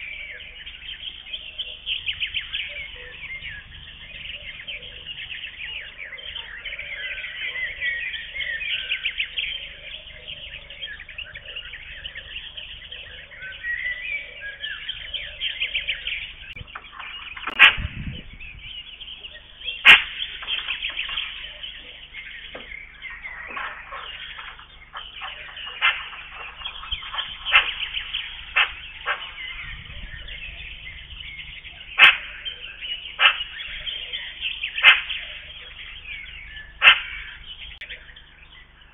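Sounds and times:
small birds chirping: 0.0s - 38.9s
short sharp sounds: 19.9s - 20.2s, 32.0s - 32.3s, 34.8s - 35.2s, 36.8s - 37.2s.

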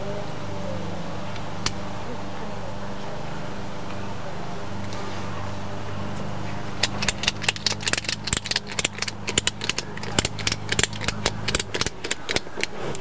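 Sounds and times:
steady low hum: 0.0s - 13.0s
strap and buckle clicking and rattling: 6.7s - 13.0s.

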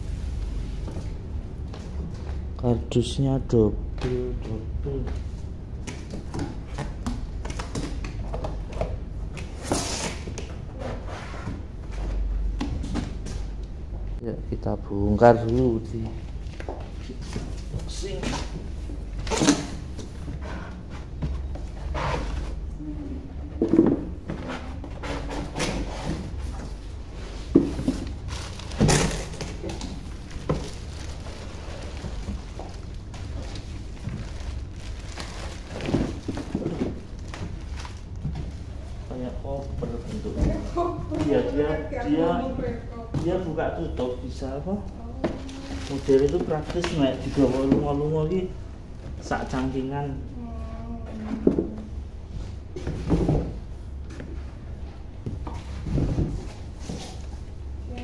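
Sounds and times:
plastic bag crinkling: 28.2s - 38.2s, 45.4s - 47.5s
cardboard rustling and scraping: 45.2s - 48.0s, 55.4s - 57.5s.

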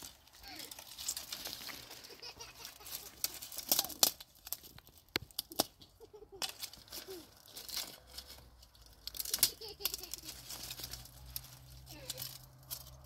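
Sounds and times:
dry twigs and leaves crackling: 0.0s - 13.0s.

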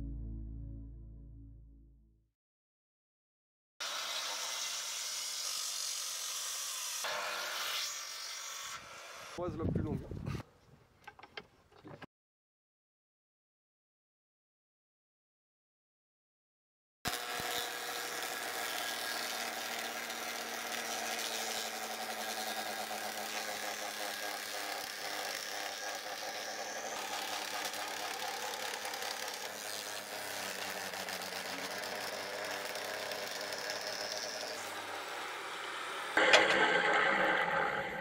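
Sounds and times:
circular saw cutting wood: 3.8s - 9.4s, 17.1s - 38.0s.

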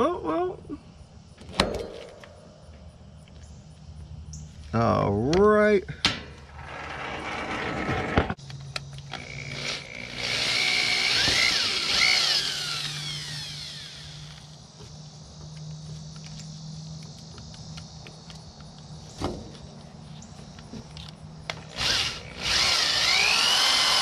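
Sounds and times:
electric drill with hole saw cutting: 9.1s - 14.6s, 21.7s - 24.0s.

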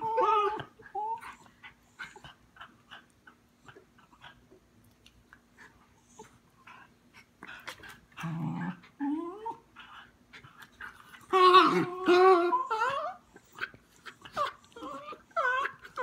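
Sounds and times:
dog whining: 0.0s - 3.0s, 8.2s - 16.0s
dog play growling: 5.6s - 16.0s.

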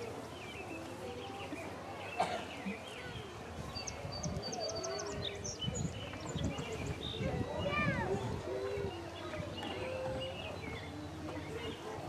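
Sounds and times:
birds singing and chirping: 0.3s - 12.0s
wind rumble on microphone: 3.1s - 10.6s.

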